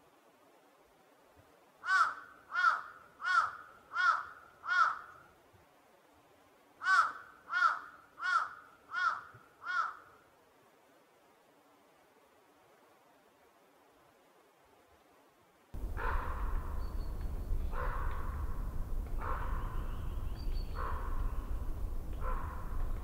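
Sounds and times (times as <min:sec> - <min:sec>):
crow cawing: 0:01.8 - 0:05.2, 0:06.8 - 0:10.1, 0:15.8 - 0:23.0.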